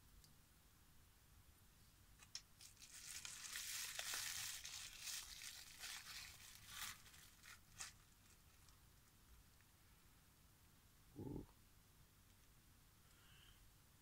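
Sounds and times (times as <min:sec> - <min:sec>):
bubble wrap crinkling: 0:02.2 - 0:09.1.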